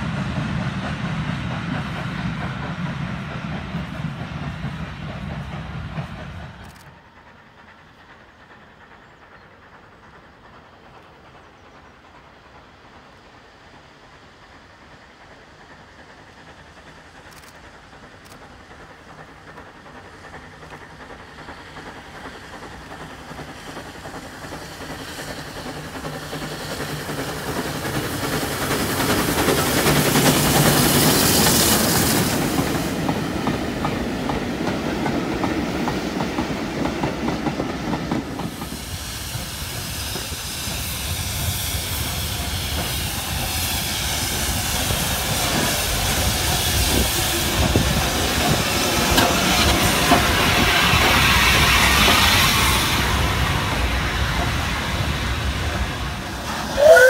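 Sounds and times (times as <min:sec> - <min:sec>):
steam locomotive exhaust and hiss: 0:00.0 - 0:57.0
train wheels clicking over rail joints: 0:00.0 - 0:57.0.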